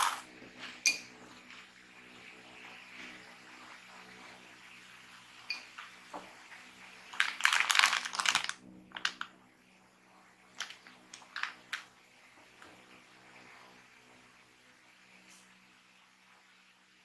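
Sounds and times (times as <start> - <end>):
plastic snack bag crinkling: 7.1 - 9.3, 10.6 - 11.8.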